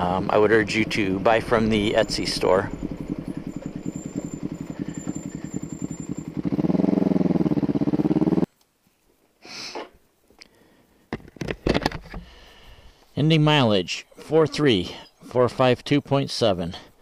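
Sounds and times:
motorcycle engine running: 0.0s - 8.5s.

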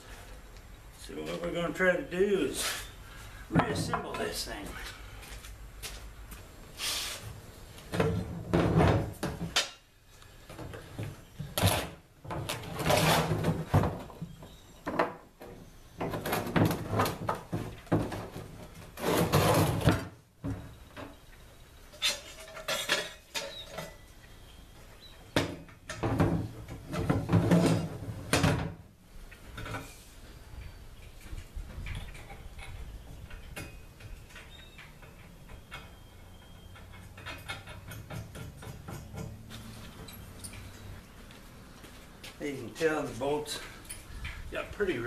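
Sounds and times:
wood and metal clattering on wheelbarrow: 3.5s - 4.4s, 7.9s - 9.8s, 10.5s - 21.2s, 21.9s - 24.0s, 25.4s - 28.9s, 31.3s - 40.7s.

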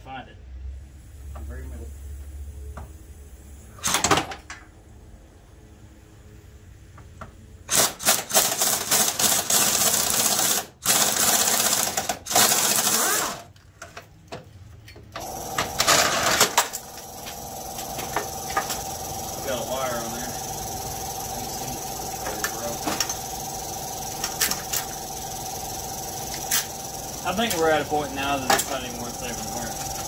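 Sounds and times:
impact wrench hammering: 15.2s - 30.0s.

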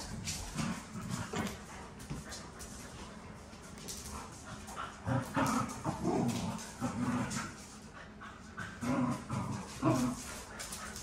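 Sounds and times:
dogs growling: 0.0s - 1.8s, 4.2s - 11.0s.

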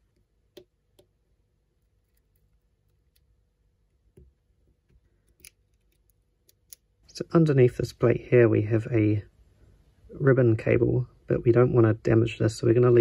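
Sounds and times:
tweezers clicking on small metal parts: 5.2s - 6.8s.

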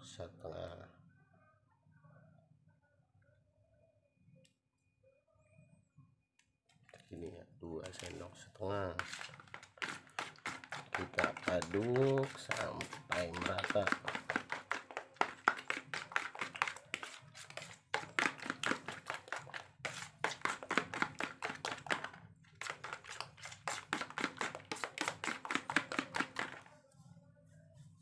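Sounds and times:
fork tapping against plastic bowl: 9.0s - 26.7s.

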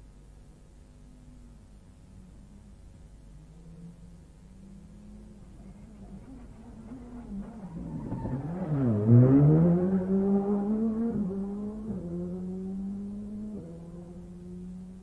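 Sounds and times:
rally car passing at speed: 4.6s - 15.0s.

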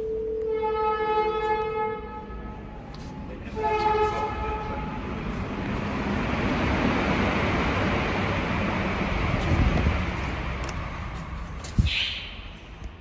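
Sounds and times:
train horn blasts: 0.0s - 2.8s, 3.4s - 5.2s.

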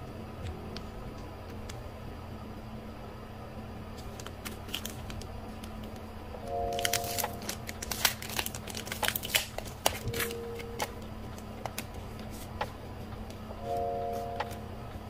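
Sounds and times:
plastic sleeves crinkling: 4.0s - 5.9s, 6.6s - 12.5s.

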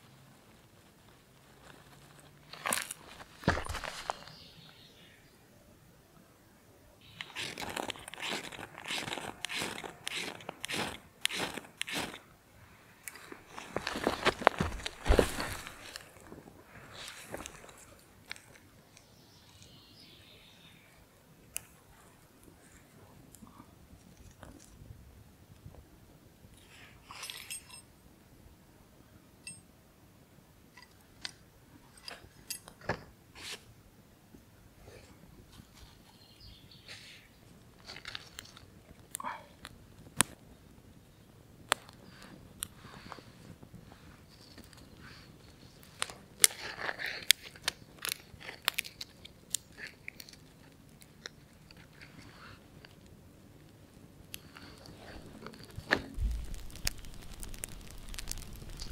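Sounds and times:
campfire crackling: 0.0s - 4.4s, 7.0s - 19.0s, 37.5s - 58.9s
twigs snapping: 2.5s - 4.3s, 7.1s - 12.2s, 13.0s - 16.4s, 45.8s - 52.1s, 54.3s - 58.9s
campfire crackling and popping: 7.1s - 12.3s, 52.7s - 58.9s
light metallic clinks: 27.1s - 27.9s, 29.4s - 29.7s.

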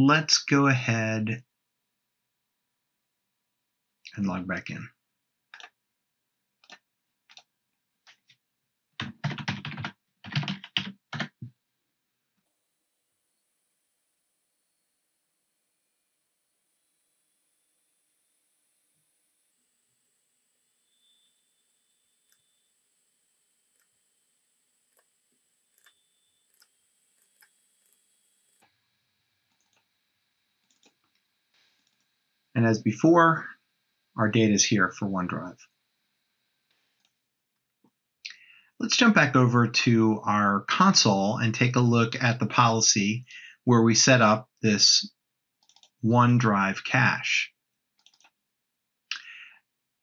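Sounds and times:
computer keyboard typing: 9.0s - 11.5s, 29.5s - 29.8s, 30.6s - 31.0s, 45.6s - 46.0s, 48.0s - 48.3s.

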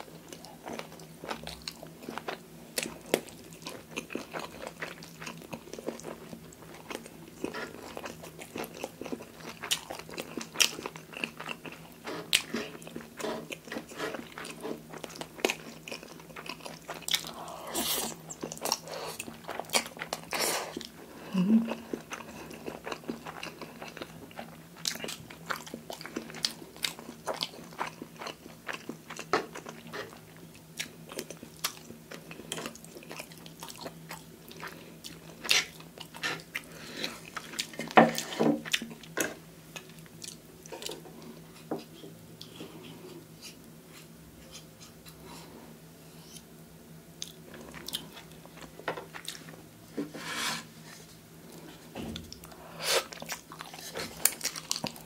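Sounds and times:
wet chewing: 52.3s - 55.0s.

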